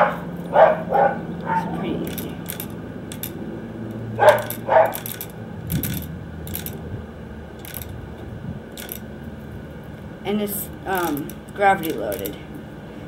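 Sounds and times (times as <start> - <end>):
metal bbs clicking and rattling: 1.4 - 6.8, 7.6 - 8.0, 8.7 - 12.4.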